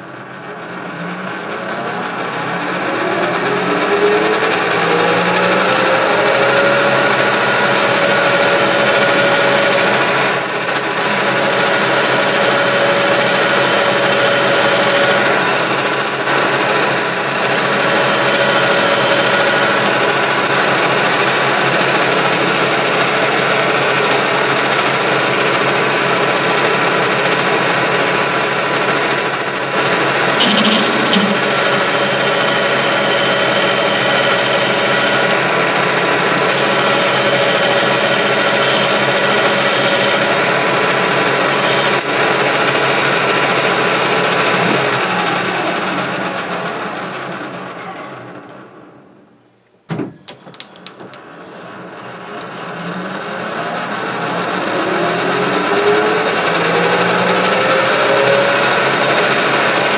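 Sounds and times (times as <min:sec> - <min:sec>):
metal lathe whine: 0:00.0 - 0:47.7, 0:50.6 - 0:59.9
tool cutting metal: 0:03.7 - 0:20.7, 0:27.8 - 0:43.5, 0:50.5 - 0:55.9, 0:56.6 - 0:58.9.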